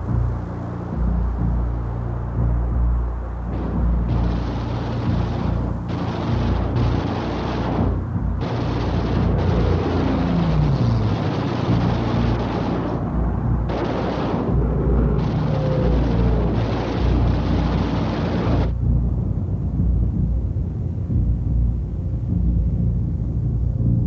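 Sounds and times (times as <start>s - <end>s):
aircraft engines droning: 0.0s - 23.8s
explosions: 3.5s - 18.7s
gunfire: 3.5s - 18.7s
falling whines: 3.6s - 18.7s.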